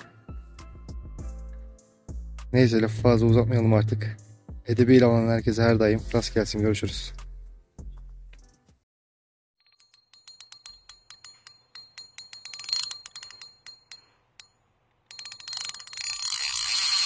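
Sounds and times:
high bell-like ringing: 0:09.6 - 0:16.3.

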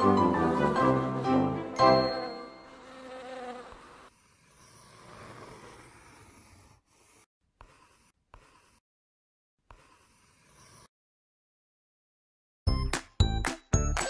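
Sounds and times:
children's background music: 0:00.0 - 0:02.7, 0:12.7 - 0:14.0
cartoon bee buzzing: 0:00.0 - 0:08.8.

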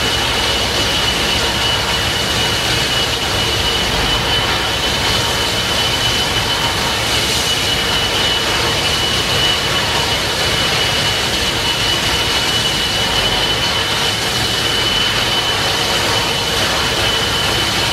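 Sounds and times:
gas turbine whine: 0:00.0 - 0:17.9.

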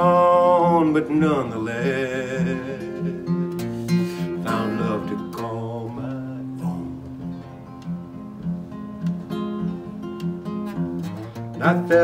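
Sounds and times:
man singing: 0:00.0 - 0:07.4, 0:11.5 - 0:12.0
acoustic guitar playing: 0:00.0 - 0:12.0.

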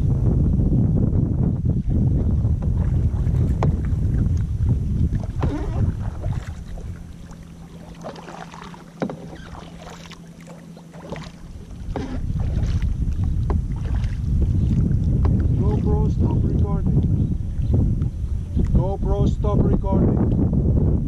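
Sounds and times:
wind buffeting microphone: 0:00.0 - 0:21.0
paddles splashing in water: 0:02.2 - 0:17.1.

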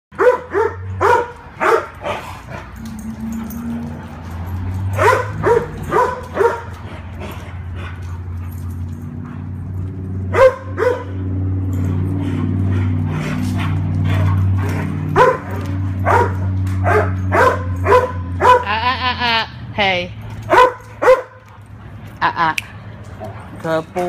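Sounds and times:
dog barking: 0:00.2 - 0:02.2, 0:04.9 - 0:06.7, 0:10.3 - 0:11.3, 0:15.1 - 0:18.7, 0:20.5 - 0:21.5.

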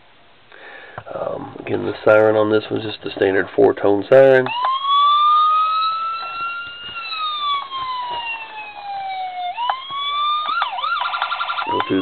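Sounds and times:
toy police siren wailing and yelping: 0:04.5 - 0:12.0.

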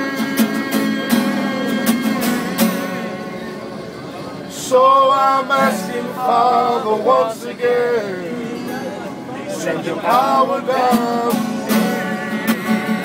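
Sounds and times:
man singing loudly: 0:00.0 - 0:02.7, 0:04.6 - 0:08.4, 0:09.6 - 0:13.0
guitar strumming: 0:00.0 - 0:13.0.

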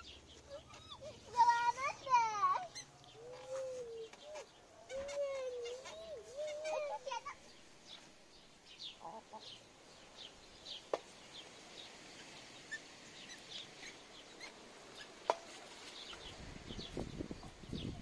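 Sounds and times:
hen clucking: 0:00.0 - 0:07.4, 0:09.0 - 0:09.6
small birds chirping: 0:00.0 - 0:18.0.

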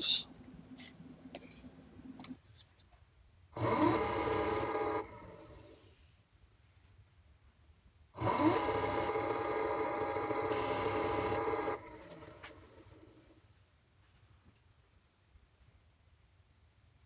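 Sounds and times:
faint hum: 0:00.0 - 0:02.4
wood lathe motor whining: 0:03.6 - 0:05.6, 0:08.2 - 0:13.1.

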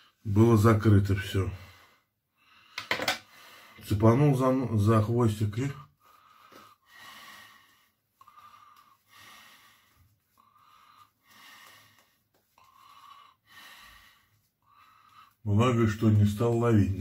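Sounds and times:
man breathing through nose: 0:01.6 - 0:03.8, 0:06.0 - 0:15.4.

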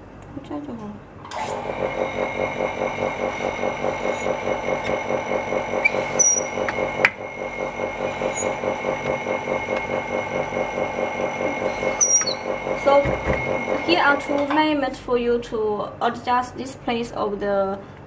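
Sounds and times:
vacuum pump running with whine: 0:01.3 - 0:15.0.

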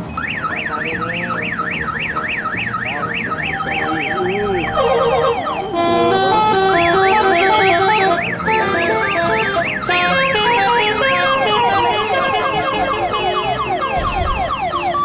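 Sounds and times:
beeping melody: 0:00.0 - 0:15.0
chiming electronic tune: 0:00.2 - 0:09.8
electronic siren yelp: 0:00.2 - 0:15.0.

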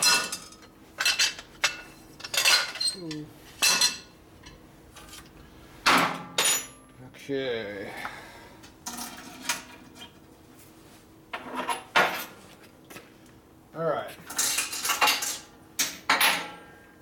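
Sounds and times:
metal parts clinking on steel bench: 0:00.0 - 0:04.6.

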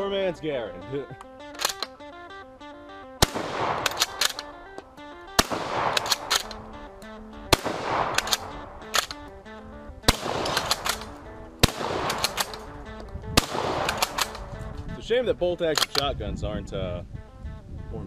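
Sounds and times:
shotgun shots with echo: 0:03.2 - 0:04.6, 0:05.4 - 0:09.3, 0:10.0 - 0:14.7.

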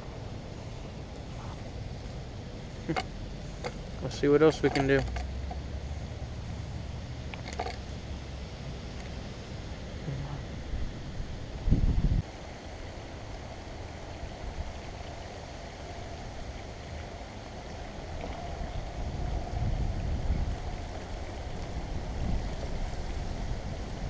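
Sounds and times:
wind buffeting microphone: 0:03.5 - 0:12.3, 0:15.9 - 0:24.0.

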